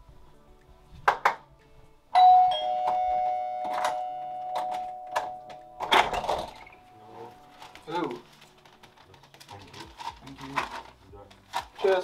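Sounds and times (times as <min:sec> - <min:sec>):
two-note doorbell chime: 0:02.2 - 0:07.3.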